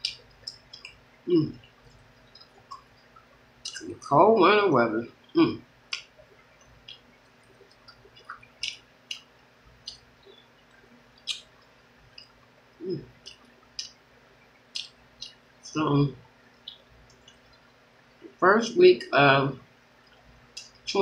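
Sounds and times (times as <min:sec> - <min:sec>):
wet lip smacks while eating: 0:06.8 - 0:12.4, 0:13.0 - 0:14.0, 0:14.7 - 0:15.4.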